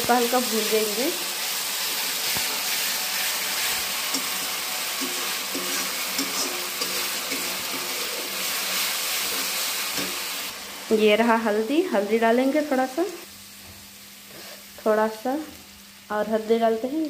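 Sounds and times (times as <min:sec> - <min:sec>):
onions sizzling in hot oil: 0:00.0 - 0:17.0
spatula stirring in pan: 0:01.8 - 0:10.5.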